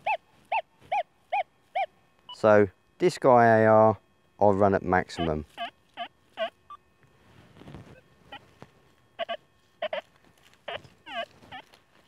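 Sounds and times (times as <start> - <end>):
metal detector warbling beeps: 0.0 - 2.5, 4.9 - 6.8, 7.8 - 12.0
faint threshold hum: 0.0 - 12.0.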